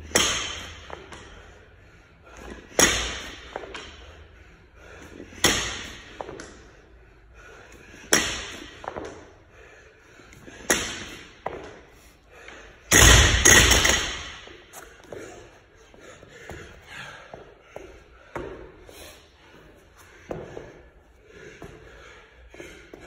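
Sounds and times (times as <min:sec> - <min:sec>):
barbell hitting rubber floor: 0:00.0 - 0:01.0, 0:12.9 - 0:14.5
barbell crashing and bouncing: 0:00.0 - 0:01.2, 0:02.7 - 0:04.0, 0:12.9 - 0:14.6.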